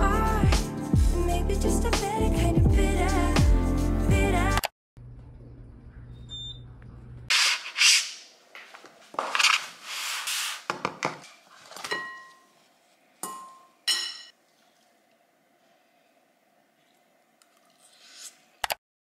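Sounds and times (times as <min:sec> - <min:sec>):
paper packaging rustling: 0:07.3 - 0:11.9
clinks on a glass bowl: 0:13.2 - 0:14.3.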